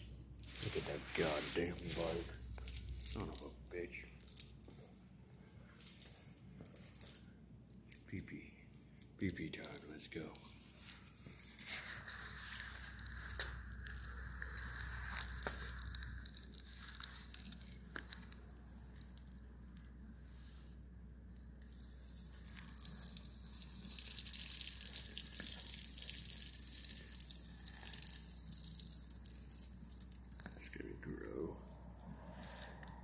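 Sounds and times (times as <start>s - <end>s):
rustling: 0.4s - 5.0s, 9.6s - 18.4s
urine splashing onto ground: 22.0s - 30.7s.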